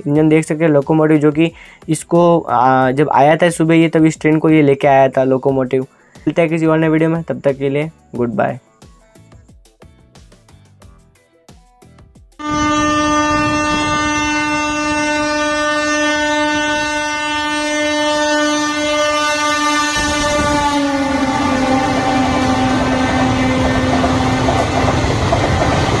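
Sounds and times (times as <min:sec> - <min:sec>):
locomotive horn blast: 0:12.4 - 0:26.0
coaches rumbling by: 0:20.3 - 0:26.0.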